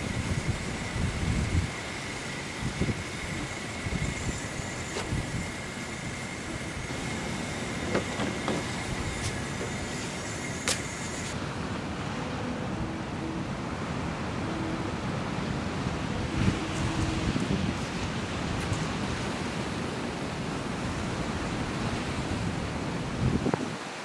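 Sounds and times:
camp stove burner roaring: 0.0s - 11.4s.

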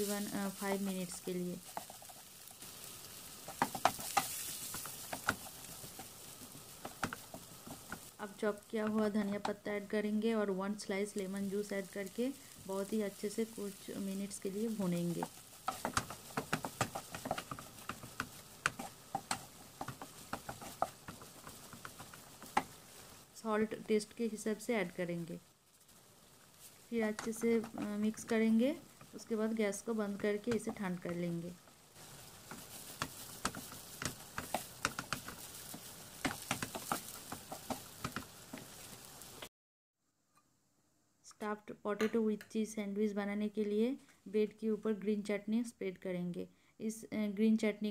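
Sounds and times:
wooden spatula scraping frying pan: 0.0s - 9.4s, 11.2s - 23.3s, 26.5s - 39.4s.

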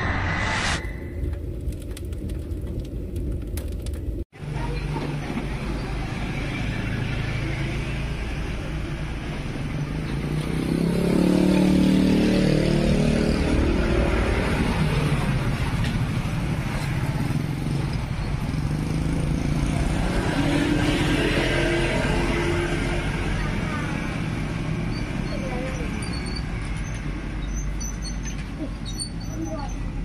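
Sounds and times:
low traffic rumble: 0.0s - 30.0s
motorcycles passing: 5.4s - 24.9s.

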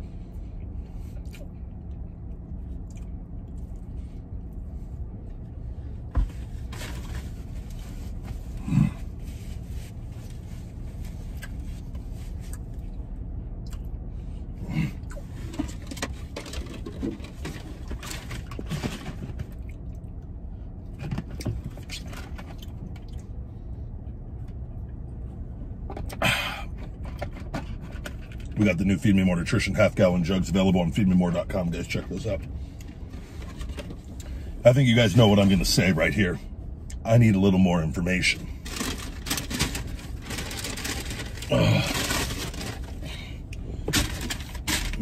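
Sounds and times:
truck cab rumble: 0.0s - 45.0s
man chewing: 0.3s - 4.6s, 13.6s - 13.9s.

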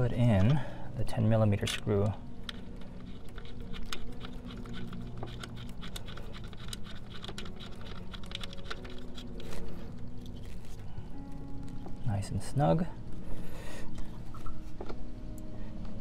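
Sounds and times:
faint low hum: 0.0s - 16.0s
bolt turned by hand clicking: 1.6s - 9.6s.

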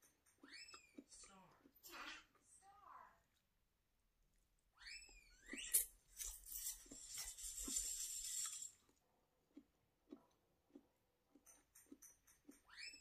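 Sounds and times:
person chewing: 5.5s - 12.7s
person slurping noodles: 6.6s - 8.9s.

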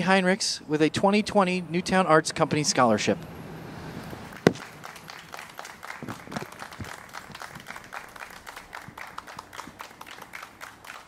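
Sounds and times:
light applause: 4.3s - 11.0s.

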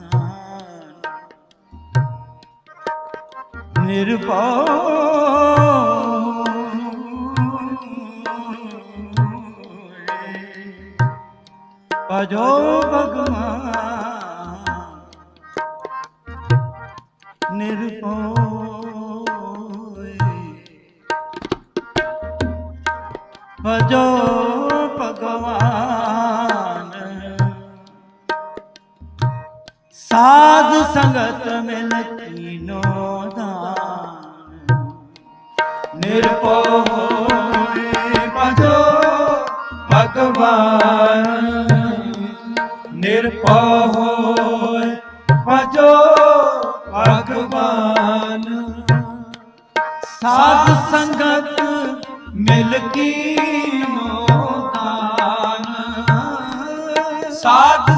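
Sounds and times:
man singing melodic phrases: 0.0s - 1.4s, 3.6s - 11.2s, 12.1s - 15.3s, 17.4s - 21.1s, 23.5s - 28.0s, 30.0s - 35.2s, 35.9s - 57.9s
tabla strokes: 14.6s - 17.8s, 18.4s - 26.7s, 27.4s - 57.9s.

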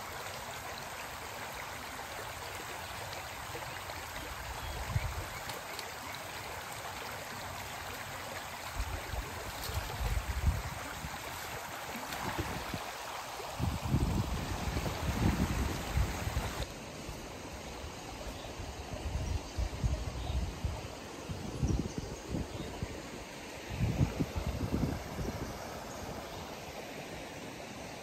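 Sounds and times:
floodwater rushing: 0.0s - 16.7s.

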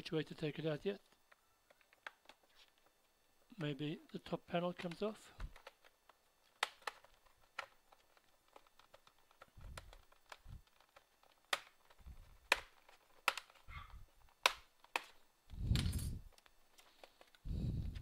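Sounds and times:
plastic clips clicking loose: 1.0s - 2.9s, 3.6s - 15.2s.

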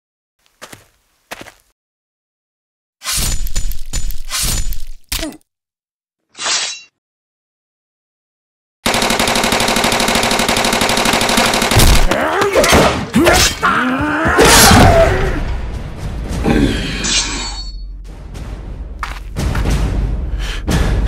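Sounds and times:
rapid automatic gunfire: 8.8s - 12.1s.

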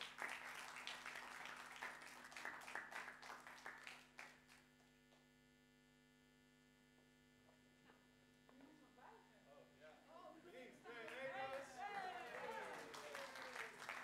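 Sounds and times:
audience applauding: 0.0s - 4.6s, 10.9s - 14.0s
faint electrical hum: 0.1s - 14.0s.

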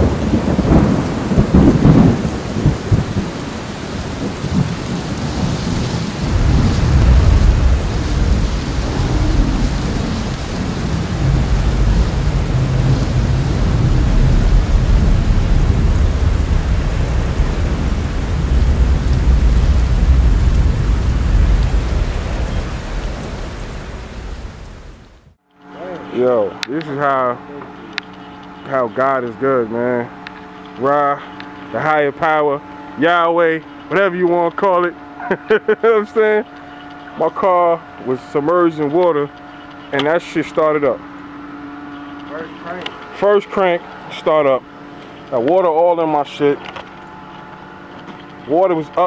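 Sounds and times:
low thunder rumble: 0.0s - 25.4s
thunder clap: 0.0s - 25.4s
steady rain: 0.0s - 49.0s.

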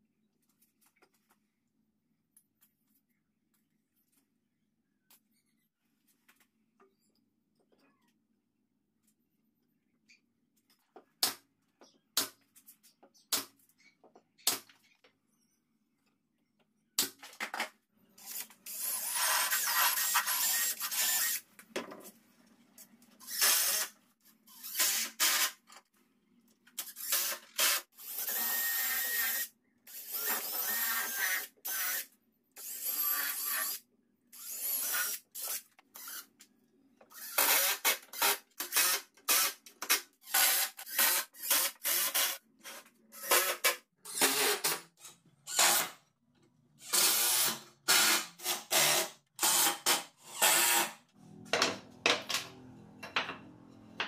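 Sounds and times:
cordless drill driving screws into wood: 18.2s - 21.4s, 23.2s - 23.9s, 24.6s - 25.6s, 26.8s - 33.8s, 37.1s - 42.4s, 45.5s - 46.0s, 46.8s - 51.0s.

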